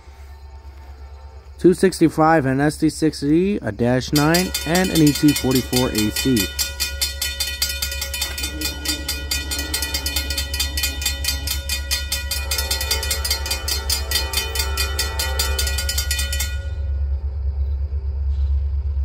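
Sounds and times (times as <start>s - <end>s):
freight train passing: 0.0s - 19.0s
rapid even clicking of wheels: 4.0s - 16.9s.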